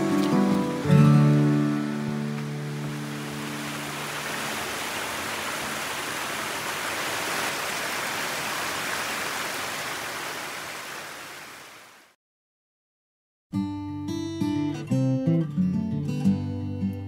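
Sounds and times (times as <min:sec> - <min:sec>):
creek rushing over rocks: 0:00.0 - 0:12.2.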